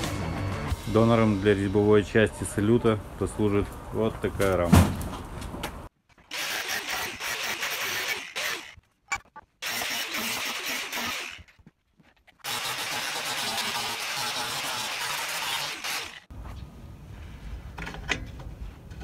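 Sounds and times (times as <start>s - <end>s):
angle grinder cutting steel: 6.3s - 8.8s, 9.6s - 11.5s, 12.4s - 16.3s.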